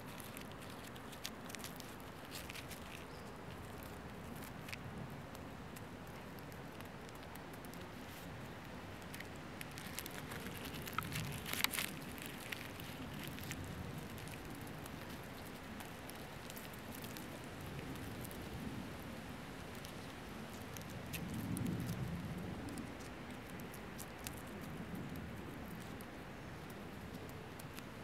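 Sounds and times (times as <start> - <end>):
beetle chewing soft clicks: 0.0 - 19.0, 19.7 - 28.0.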